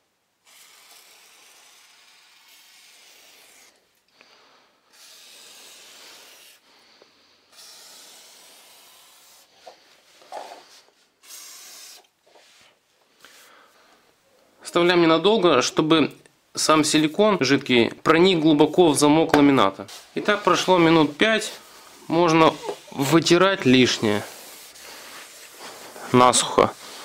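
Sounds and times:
aerosol can spraying: 0.4 - 3.8, 4.9 - 6.6, 7.5 - 9.6, 11.2 - 12.6, 24.0 - 26.0.

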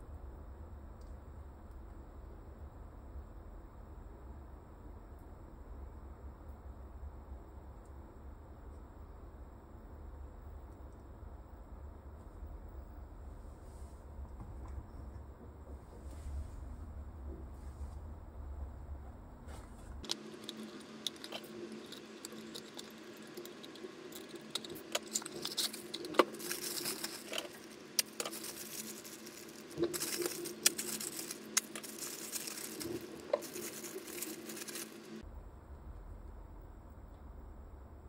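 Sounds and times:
plastic bag crinkling: 20.0 - 35.2.

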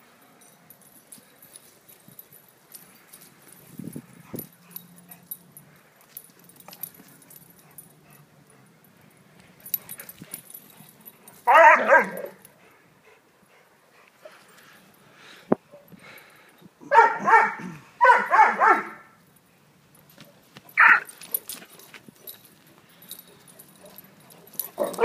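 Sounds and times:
puppy yelping: 20.8 - 21.1.

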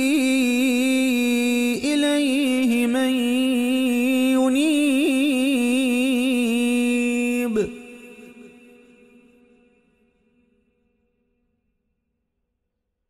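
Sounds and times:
man chanting melodically: 0.0 - 9.8.

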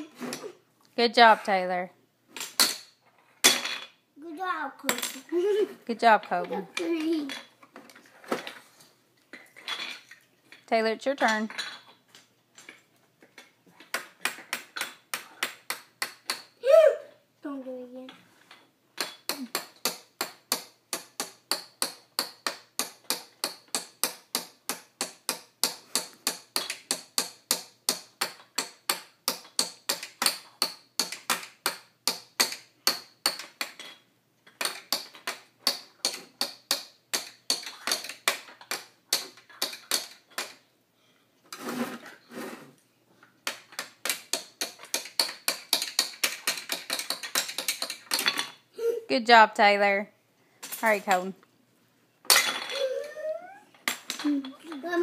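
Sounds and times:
plastic mallet tapping plastic blocks: 19.0 - 33.9, 43.4 - 48.4.

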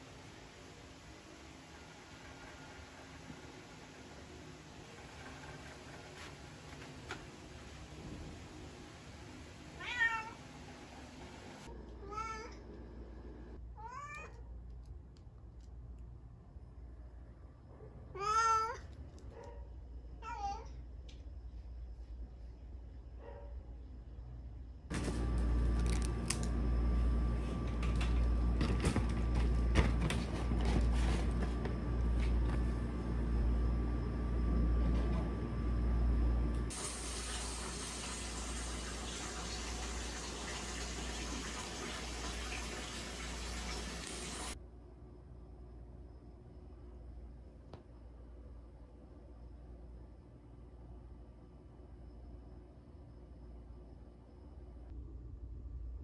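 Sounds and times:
cat meowing: 9.8 - 10.4, 12.0 - 12.6, 13.8 - 14.4, 18.2 - 18.9
low hum: 20.8 - 36.7.

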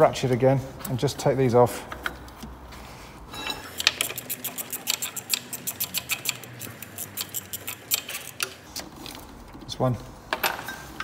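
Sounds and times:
ratchet clicking: 3.7 - 8.6.

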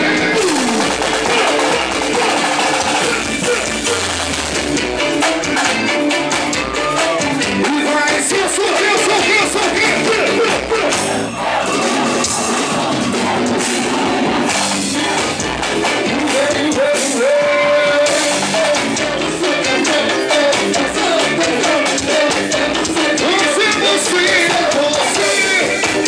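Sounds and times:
live band playing through pa: 0.0 - 26.0
percussion: 0.0 - 26.0
person singing into microphone: 14.8 - 26.0.

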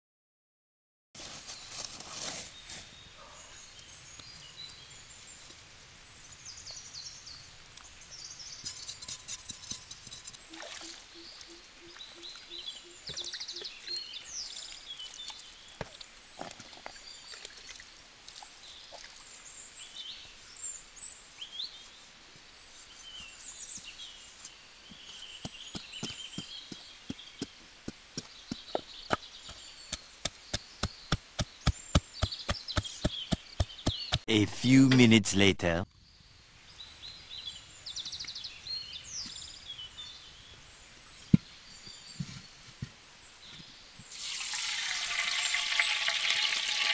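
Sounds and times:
birds chirping and singing: 1.5 - 16.0, 19.4 - 35.2
pestle pounding in wooden mortar: 25.4 - 34.3.

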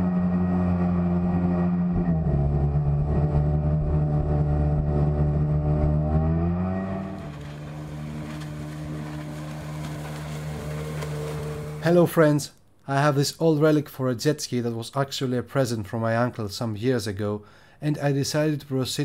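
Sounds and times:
jet ski engine revving: 0.0 - 11.9.

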